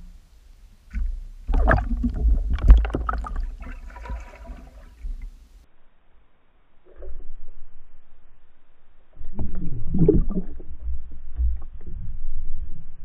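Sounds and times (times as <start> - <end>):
sharp knocks underwater: 0.9 - 5.4.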